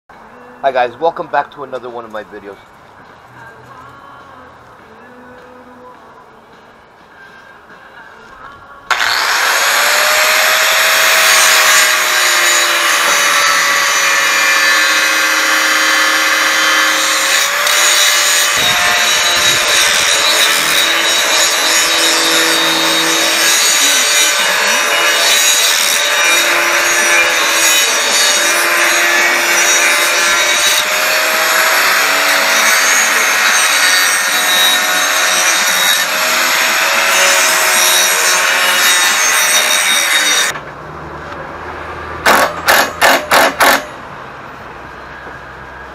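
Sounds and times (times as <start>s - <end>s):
angle grinder grinding steel: 8.9s - 40.6s.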